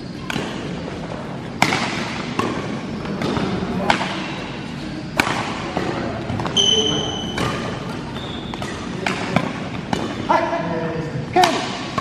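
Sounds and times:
racket hitting shuttlecock: 0.2 - 0.8, 1.6 - 10.2, 11.4 - 12.0
sneaker squeaking on floor: 4.8 - 10.2.

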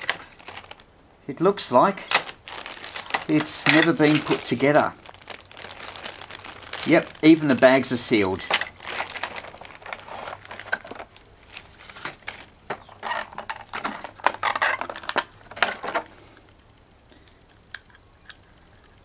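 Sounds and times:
plastic bags crinkling: 0.0 - 0.9, 1.9 - 16.1.

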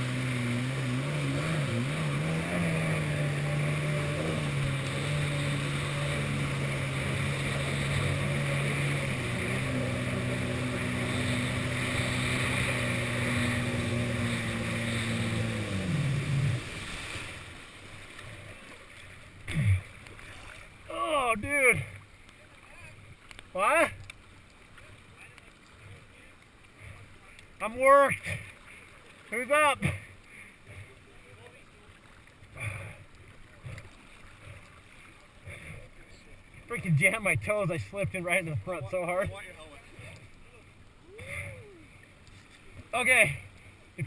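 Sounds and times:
jet ski engine running: 0.0 - 24.1, 24.7 - 44.0.

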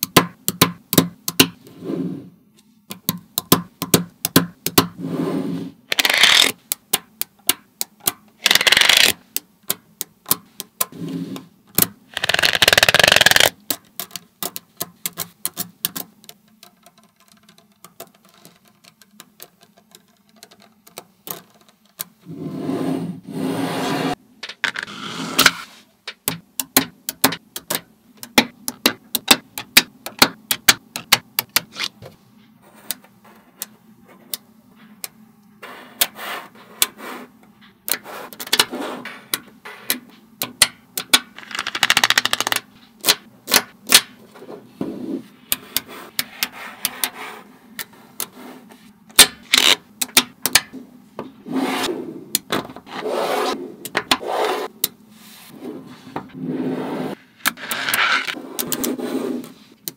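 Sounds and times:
magnet balls rubbing and rattling: 5.8 - 6.7, 8.4 - 9.3, 12.1 - 22.1, 41.3 - 43.2, 48.1 - 49.9, 55.4 - 59.8
magnet balls clicking together: 5.9 - 10.9, 11.7 - 22.1, 41.0 - 43.6.

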